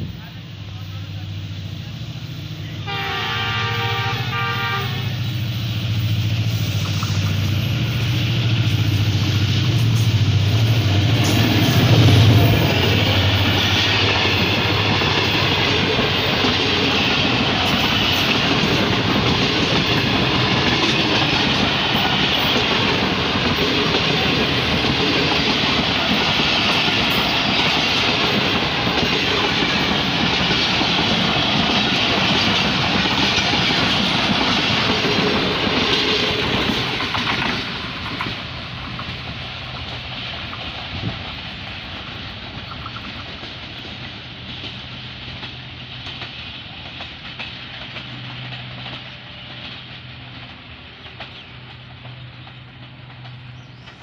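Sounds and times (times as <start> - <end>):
train rumble: 0.0 - 54.0
train wheels clattering: 2.9 - 54.0.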